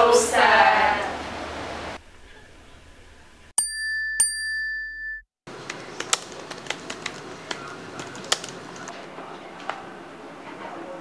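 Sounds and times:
bell-like ding: 3.6 - 5.3
typing on laptop keyboard: 5.6 - 8.9.

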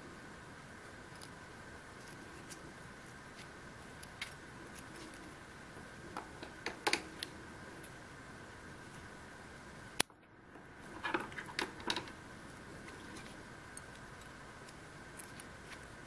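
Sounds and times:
faint steady hiss: 0.0 - 16.0
small clicks and taps: 6.1 - 7.4.

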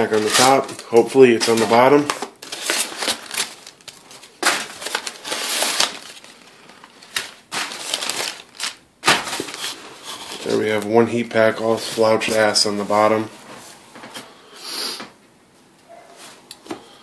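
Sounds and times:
newspaper crinkling and rustling: 0.0 - 14.1.

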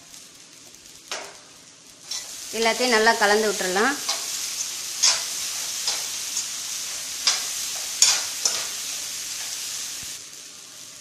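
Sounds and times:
frying sizzle: 0.0 - 11.0
metal spatula scraping a pan: 2.0 - 2.8, 4.0 - 9.8.

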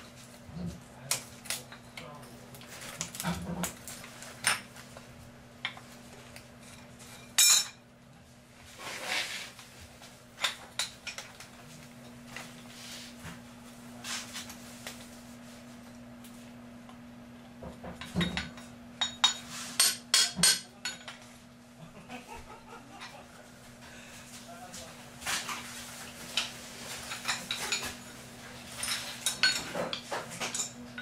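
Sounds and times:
metal tools clinking: 28.7 - 31.0.

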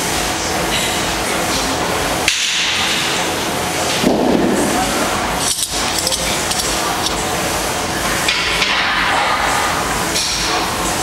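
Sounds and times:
room noise: 0.0 - 11.0
light metallic clinks: 5.4 - 7.2.

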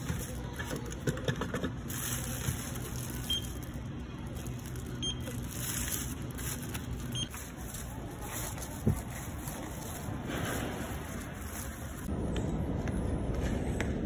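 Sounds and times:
barcode scanner beeps: 3.3 - 3.6, 5.0 - 5.4, 7.1 - 7.3.

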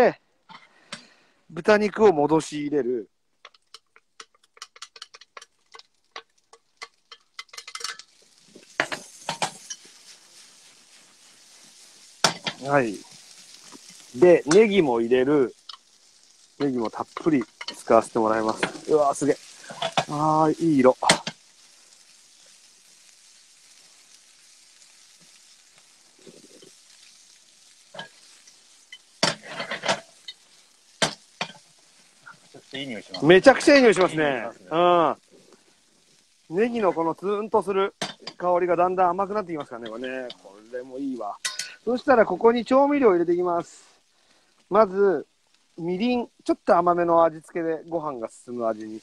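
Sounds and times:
pork sizzling in frying pan: 0.0 - 49.0
utensil clicking against dish: 3.4 - 8.1
utensil clattering on pan: 3.4 - 10.2, 12.1 - 14.7, 16.6 - 20.1, 21.0 - 21.5, 27.9 - 30.4, 31.0 - 31.7, 38.0 - 38.4, 41.4 - 41.8.

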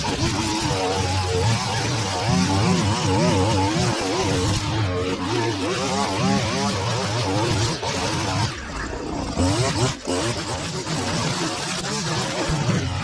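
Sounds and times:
petrol line trimmer revving: 0.0 - 13.0.

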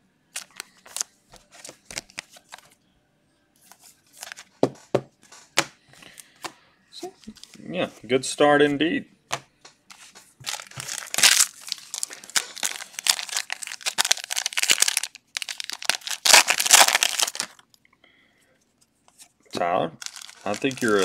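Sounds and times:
foil wrapper crinkling: 10.4 - 17.6, 20.0 - 21.0.

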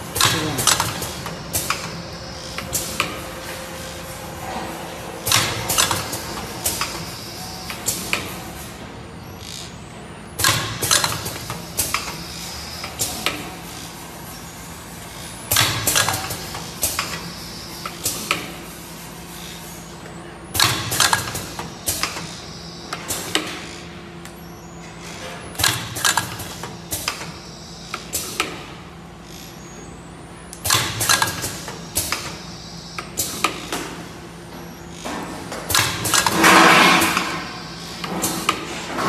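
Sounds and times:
sealing machine humming: 0.0 - 8.5
machine clicks and clacks: 5.2 - 7.0, 10.4 - 12.2, 15.5 - 17.2, 20.6 - 22.3, 25.6 - 27.4, 30.6 - 32.4, 35.2 - 37.4.

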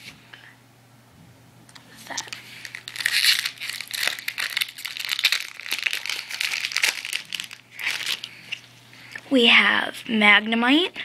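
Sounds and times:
foil wrapper crinkling and tearing: 2.1 - 8.6.

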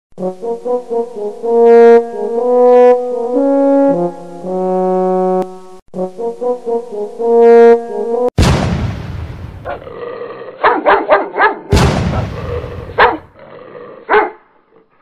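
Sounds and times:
background music melody: 0.2 - 8.3.

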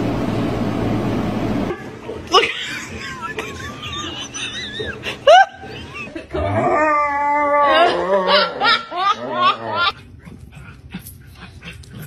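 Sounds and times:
dog howling and yowling: 6.4 - 10.0.

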